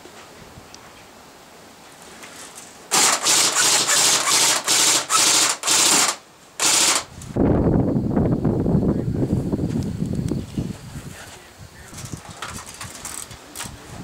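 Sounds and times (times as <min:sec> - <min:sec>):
airsoft gun rapid clicking bursts: 0:02.9 - 0:07.1.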